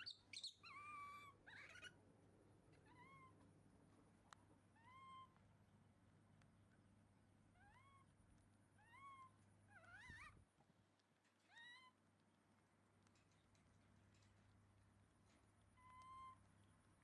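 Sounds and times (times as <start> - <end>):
baby monkey coo calls: 0.0 - 2.0, 4.8 - 5.4, 8.8 - 10.4, 15.8 - 16.4.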